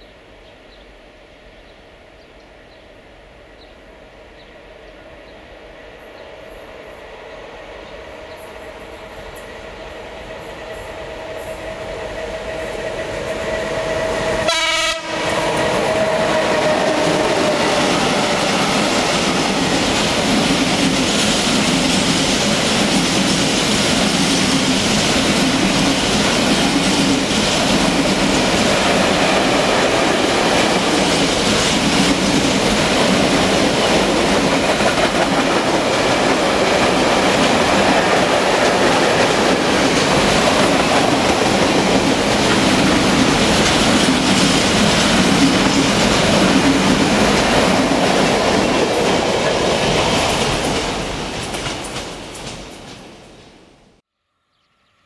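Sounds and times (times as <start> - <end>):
electric locomotive tone: 6.4 - 20.8
wheels clacking on rails: 8.3 - 53.3.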